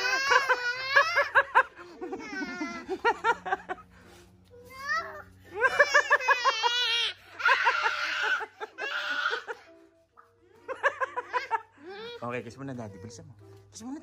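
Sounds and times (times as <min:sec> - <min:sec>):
boy laughing: 0:00.0 - 0:04.0, 0:05.4 - 0:09.7, 0:10.6 - 0:12.2
boy shrieking: 0:04.8 - 0:09.6.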